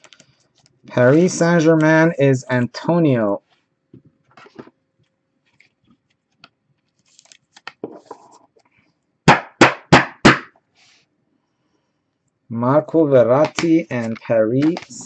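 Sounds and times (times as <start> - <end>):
trading card handling rustles: 5.4 - 8.8, 13.4 - 15.0.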